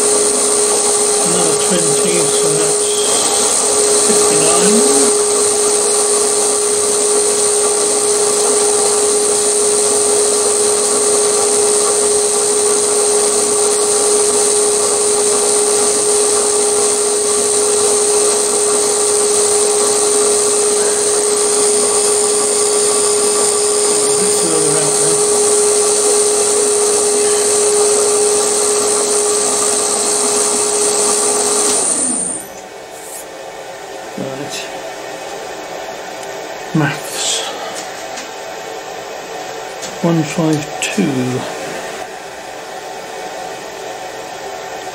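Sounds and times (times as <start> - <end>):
milling machine spindle whining: 0.0 - 33.0.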